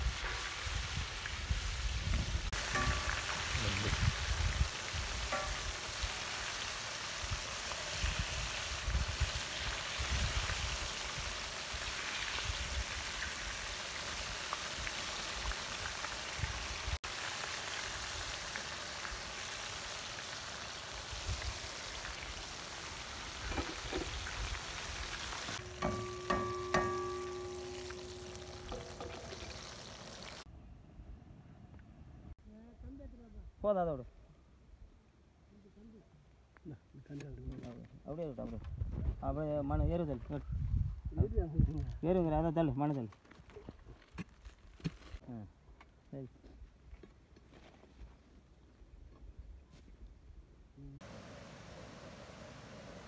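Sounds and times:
food deep-frying in hot oil: 0.0 - 30.5.

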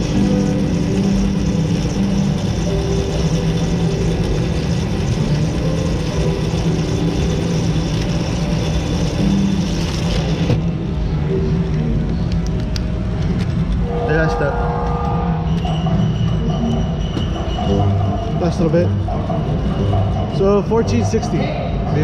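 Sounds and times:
ticket counting machine drone: 0.0 - 11.8, 12.6 - 22.0.

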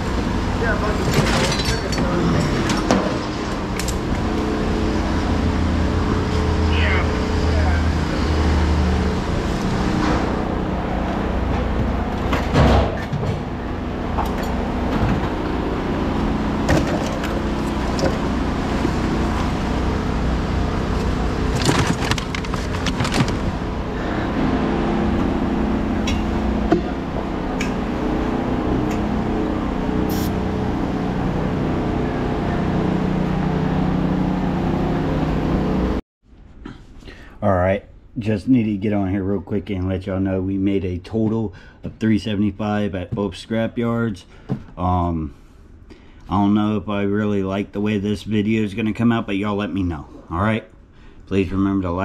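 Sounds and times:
heavy machinery engines running: 0.0 - 36.0
scrap metal clanking: 0.8 - 4.1.

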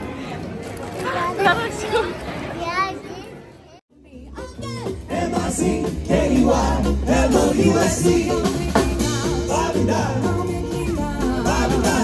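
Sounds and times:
jazz band playing: 4.2 - 12.0
steady bass line: 4.6 - 12.0
woman singing: 7.6 - 12.0.

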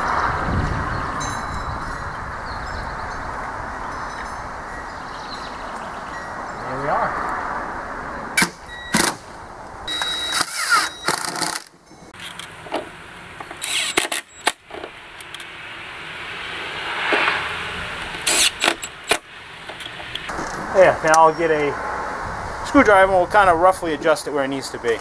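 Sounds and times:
cordless drill driving screws: 9.9 - 11.7, 13.6 - 14.5.

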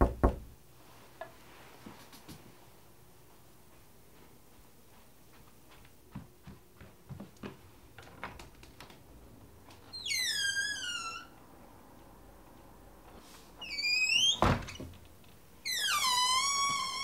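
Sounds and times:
door creaking open: 9.9 - 11.5, 13.6 - 15.0, 15.6 - 17.0.

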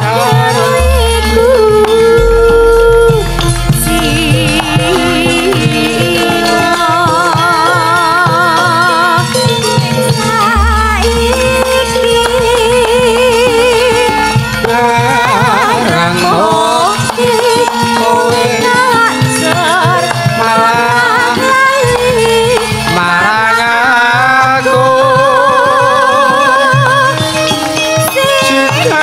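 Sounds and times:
hand drum strokes: 0.0 - 23.7
woman singing with vibrato: 0.0 - 29.0
metallophone tones: 0.2 - 22.8.

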